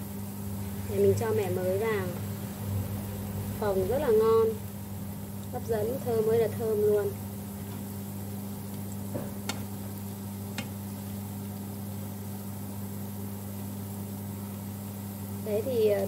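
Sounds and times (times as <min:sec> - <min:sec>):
oil sizzling: 0:00.0 - 0:16.0
steady low hum: 0:00.0 - 0:16.0
chopsticks clicking against pan: 0:09.4 - 0:09.7, 0:10.5 - 0:10.8.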